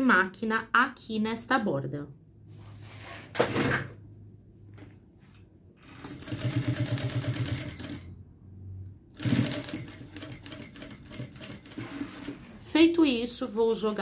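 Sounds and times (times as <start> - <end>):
sewing machine stitching: 5.8 - 8.1, 9.2 - 12.7.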